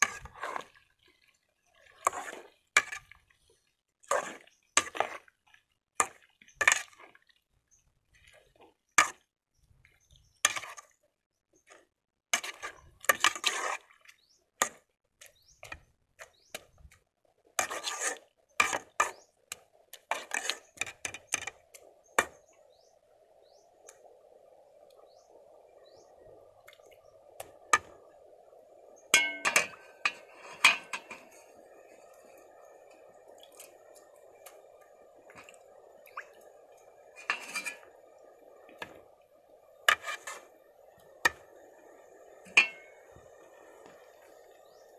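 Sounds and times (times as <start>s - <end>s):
soup simmering hiss: 0.0s - 9.2s, 12.4s - 44.9s
metal ladle clinking in pot: 29.1s - 31.3s, 42.5s - 42.9s.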